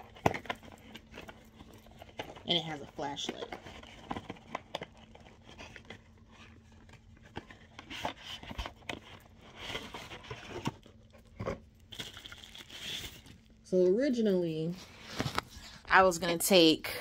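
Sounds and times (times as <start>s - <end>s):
plastic wrapping rustling: 0.0s - 13.6s.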